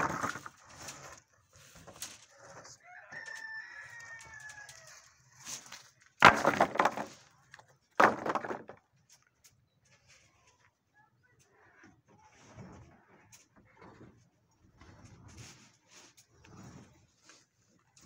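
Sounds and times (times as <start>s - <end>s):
wooden planks crashing onto pile: 0.0s - 0.6s, 5.4s - 8.8s
rooster crowing: 2.8s - 5.0s.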